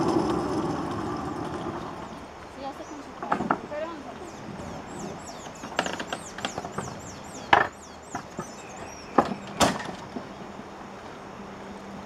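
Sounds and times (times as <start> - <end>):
wooden boards knocking: 7.5 - 10.0.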